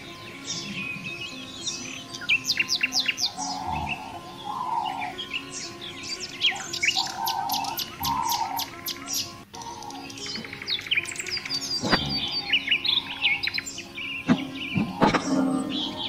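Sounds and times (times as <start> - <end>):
soft background music: 0.0 - 16.0
songbirds chirping: 0.0 - 16.0.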